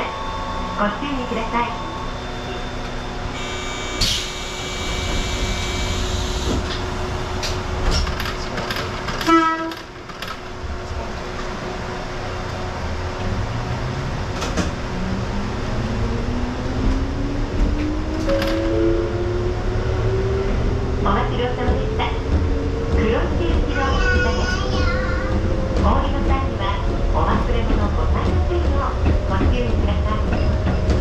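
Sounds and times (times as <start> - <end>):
train traction motors whining: 0.0 - 16.4
steady electronic door tone: 1.7 - 6.8.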